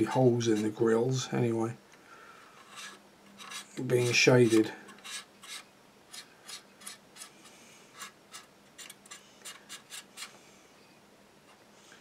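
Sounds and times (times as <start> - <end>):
cotton bud rubbing plastic: 2.6 - 7.3.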